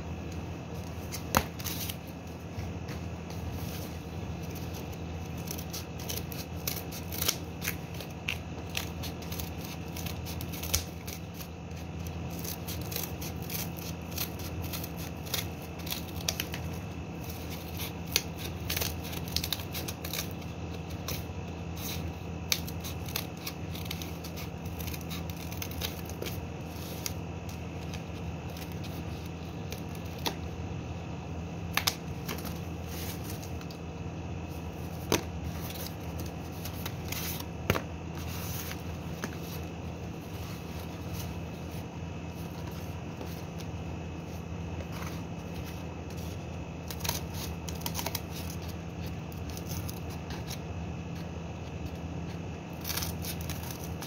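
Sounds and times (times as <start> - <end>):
steady low hum: 0.0 - 54.0
scissors cutting cardboard: 2.8 - 30.5, 44.8 - 54.0.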